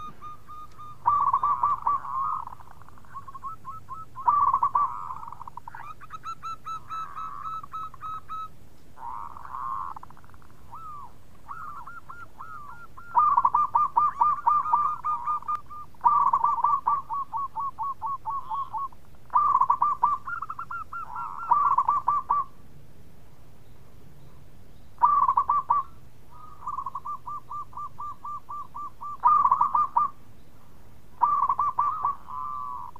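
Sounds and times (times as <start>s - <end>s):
dove cooing: 0.0s - 22.6s, 25.0s - 30.2s, 31.2s - 32.9s.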